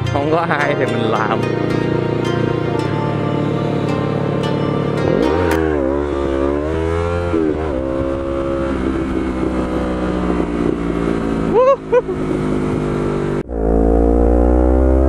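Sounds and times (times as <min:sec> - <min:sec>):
motorcycle engine accelerating: 0:00.0 - 0:15.0.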